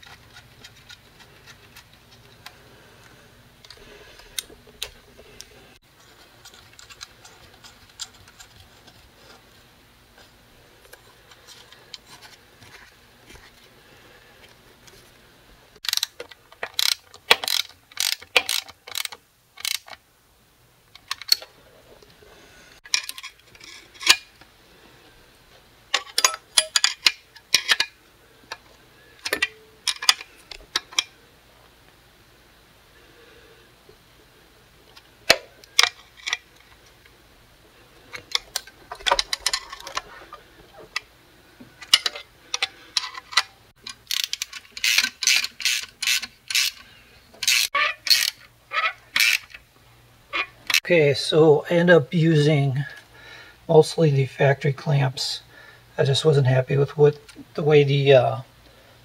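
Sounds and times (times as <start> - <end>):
socket ratchet clicking: 15.8 - 20.0, 43.9 - 46.8, 47.4 - 48.4, 49.2 - 49.6.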